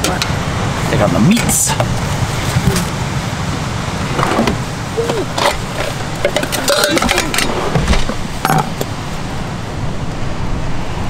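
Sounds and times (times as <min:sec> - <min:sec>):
wooden drawer opening: 0:05.3 - 0:08.2
plates clattering: 0:05.3 - 0:08.8.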